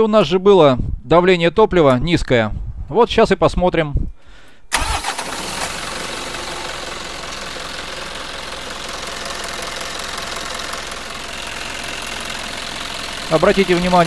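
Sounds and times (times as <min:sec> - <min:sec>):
diesel engine idling: 0:04.7 - 0:14.0.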